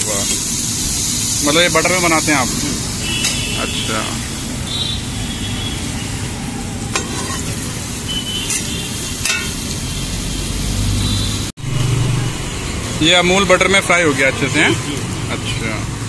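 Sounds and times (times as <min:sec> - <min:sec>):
butter sizzling on griddle: 0:00.0 - 0:16.0
metal spatula scrapes and taps: 0:06.9 - 0:07.5, 0:08.5 - 0:09.6.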